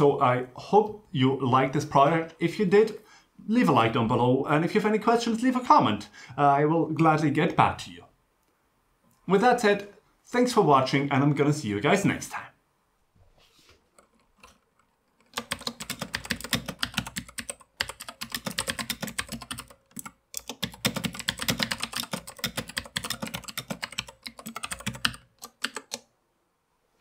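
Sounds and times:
fast mechanical keyboard typing: 0:13.9 - 0:26.1.

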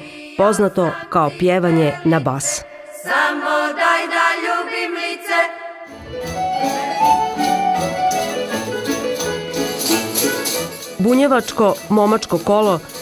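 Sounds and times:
women singing folk song: 0:00.0 - 0:05.9.

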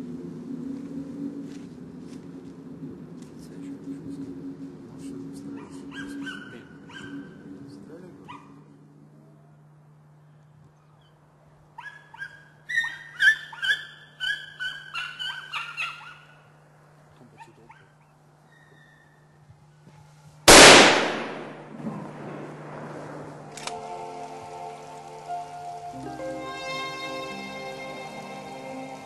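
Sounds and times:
dogs baying and yelping: 0:05.4 - 0:07.5, 0:08.2 - 0:08.8, 0:11.7 - 0:16.4, 0:17.3 - 0:19.3
rifle shot with echo: 0:20.5 - 0:23.7.

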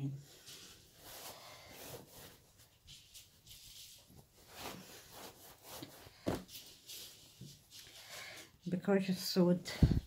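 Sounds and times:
fabric rustling and rubbing: 0:00.2 - 0:08.6.

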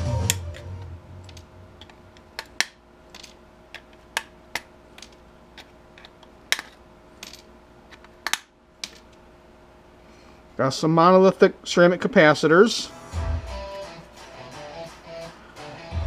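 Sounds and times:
pliers snapping components: 0:07.9 - 0:08.5.

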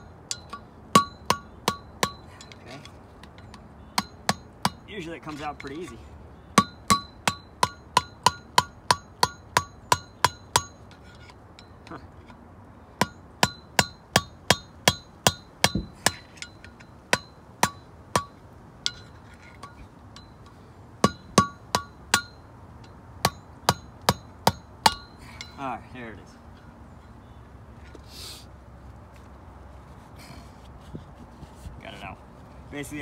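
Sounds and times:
hammer striking metal: 0:00.3 - 0:02.6, 0:03.5 - 0:04.8, 0:06.6 - 0:10.8, 0:13.0 - 0:20.4, 0:21.0 - 0:25.6.

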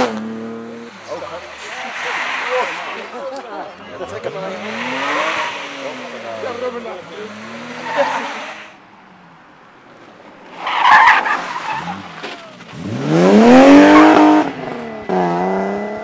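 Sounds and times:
rally car passing: 0:00.0 - 0:16.0
tyres skidding: 0:00.0 - 0:16.0
car engine revving hard: 0:04.1 - 0:08.7, 0:12.7 - 0:16.0.

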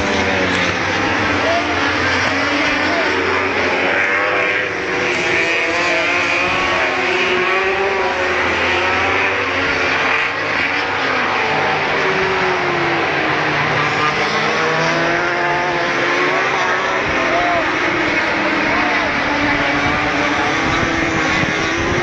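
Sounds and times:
racing motorcycle engines revving: 0:00.0 - 0:22.0.

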